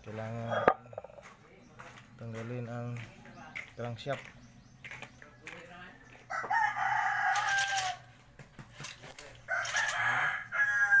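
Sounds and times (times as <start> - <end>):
rooster crowing: 6.3 - 8.1, 9.4 - 11.0.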